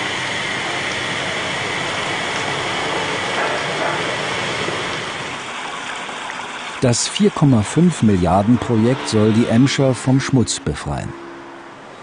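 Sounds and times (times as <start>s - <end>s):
hydraulic machinery noise: 0.0s - 5.6s, 6.8s - 12.0s
flowing river water: 0.0s - 12.0s.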